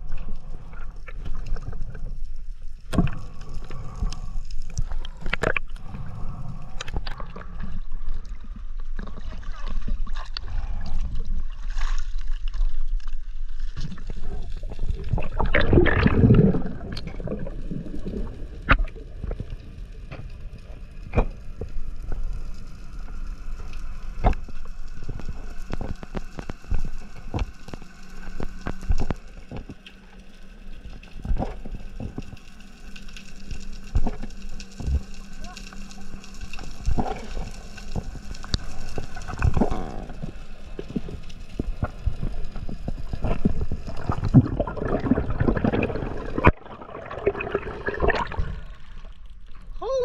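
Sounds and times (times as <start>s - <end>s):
sea water sloshing: 0.0s - 21.6s, 24.0s - 49.7s
splashing and bubbles: 0.0s - 22.4s, 24.1s - 50.0s
faint steady hum: 0.0s - 50.0s
muffled underwater ambience: 0.0s - 50.0s.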